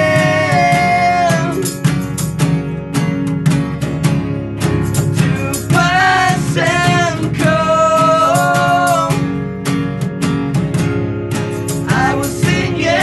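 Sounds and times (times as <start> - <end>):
man singing long notes: 0.0 - 1.8, 5.2 - 9.3, 11.9 - 13.0
floor tom beat: 0.0 - 13.0
guitars strumming: 0.0 - 13.0.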